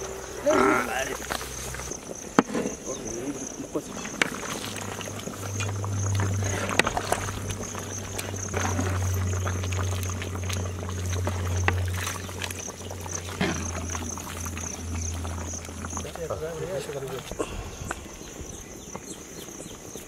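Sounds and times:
clinks and splashes: 0:00.7 - 0:17.5
low hum: 0:04.1 - 0:18.7
high steady whine: 0:04.2 - 0:17.2.

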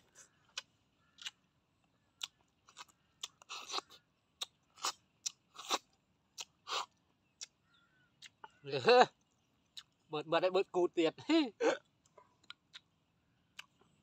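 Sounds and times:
person chewing: 0:00.4 - 0:01.5, 0:02.2 - 0:07.6, 0:12.0 - 0:13.8
slurping snails from shells: 0:02.2 - 0:07.0.

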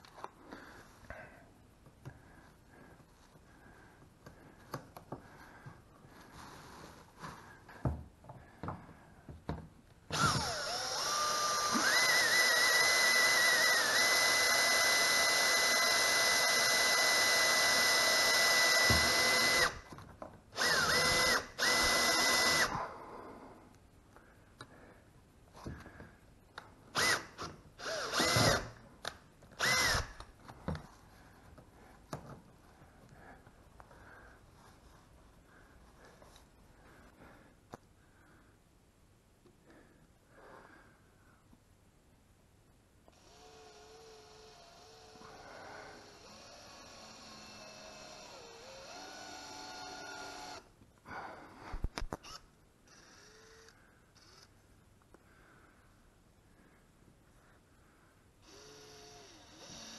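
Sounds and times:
cordless drill whining: 0:10.1 - 0:19.9, 0:20.6 - 0:22.9, 0:27.0 - 0:28.8, 0:29.6 - 0:30.2, 0:43.1 - 0:50.7, 0:52.2 - 0:54.5, 0:58.4 - 0:59.9.

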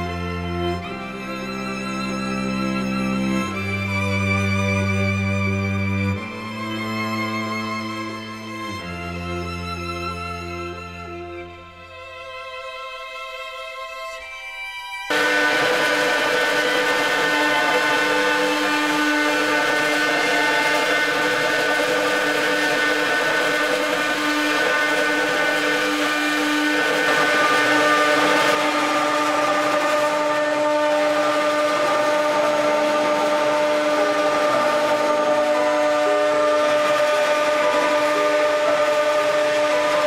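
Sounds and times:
router spindle whine: 0:15.1 - 0:40.0
rushing hiss of carving: 0:15.1 - 0:40.0.

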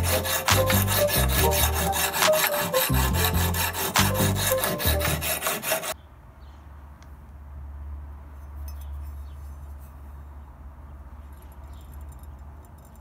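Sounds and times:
background music with bass line: 0:00.0 - 0:05.3
sharpening stone scraping axe blade: 0:00.0 - 0:06.0.

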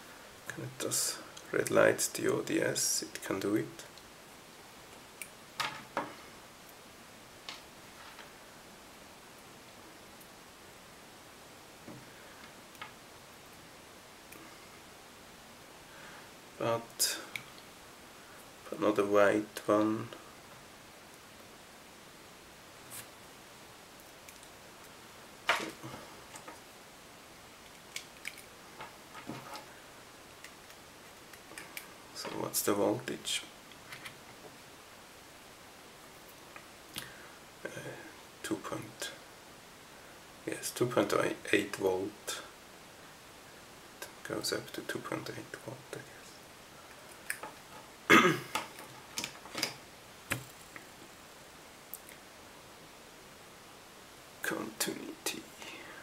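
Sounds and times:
handling noise of test leads: 0:27.5 - 0:34.6, 0:46.9 - 0:51.1.

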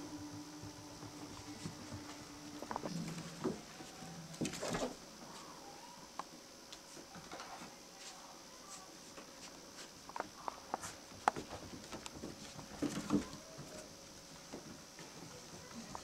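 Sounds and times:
puppies scrabbling on wood floor: 0:10.1 - 0:14.7.

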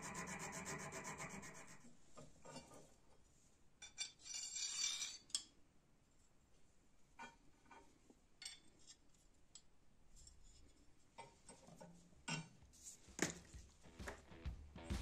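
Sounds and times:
steel file rasping on metal: 0:00.0 - 0:01.9.

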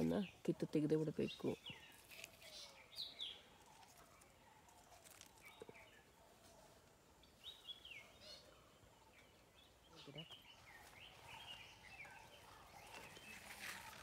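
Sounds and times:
faint birds chirping: 0:00.0 - 0:14.0.

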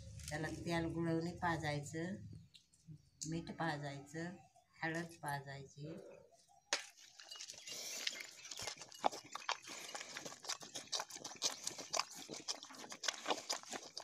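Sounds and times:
animal slurping liquid: 0:07.1 - 0:14.0.

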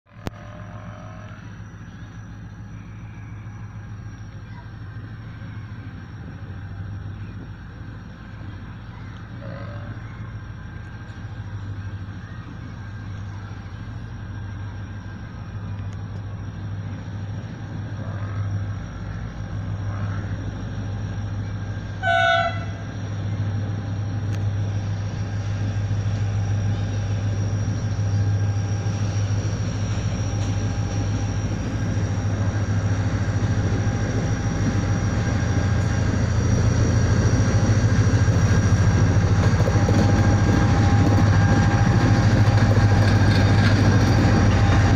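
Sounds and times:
diesel locomotive rumble: 0:00.0 - 0:44.9
train horn blast: 0:00.1 - 0:01.4, 0:22.0 - 0:22.9.

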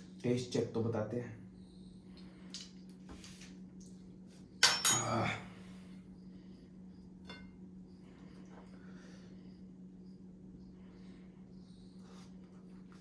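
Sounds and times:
dishes clattering: 0:04.6 - 0:05.2.

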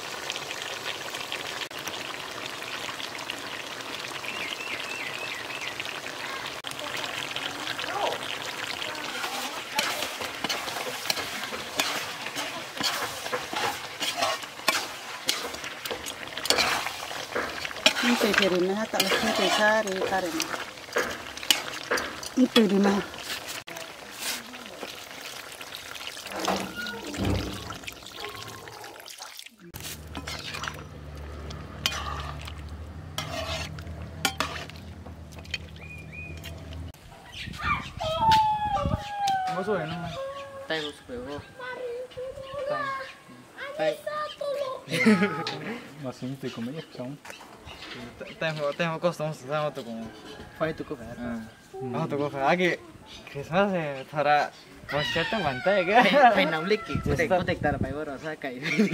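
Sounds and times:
food sizzling: 0:00.0 - 0:37.5, 0:38.1 - 0:58.9
metal ladle scraping wok: 0:09.2 - 0:25.2, 0:26.0 - 0:28.8, 0:29.7 - 0:37.0, 0:46.5 - 0:49.0.

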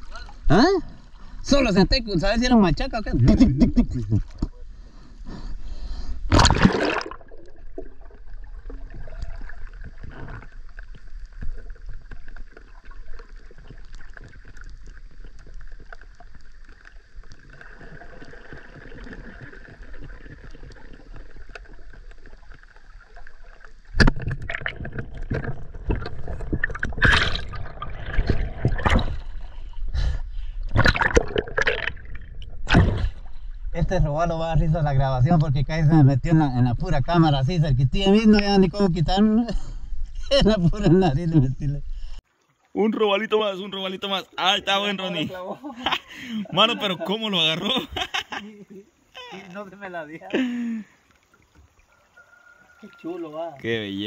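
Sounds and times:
water splashing: 0:06.2 - 0:34.0, 0:42.0 - 0:54.0.

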